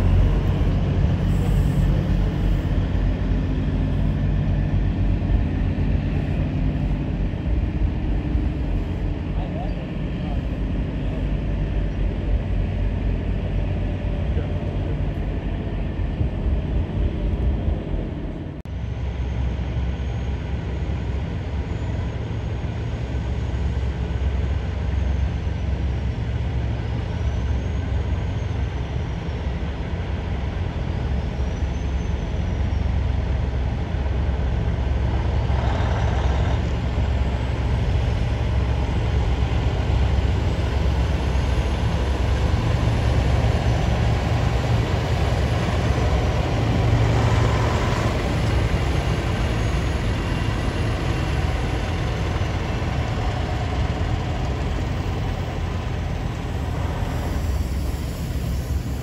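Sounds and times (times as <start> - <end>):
truck rolling by: 0.0 - 18.6, 32.4 - 59.0
truck diesel engines running: 0.0 - 59.0.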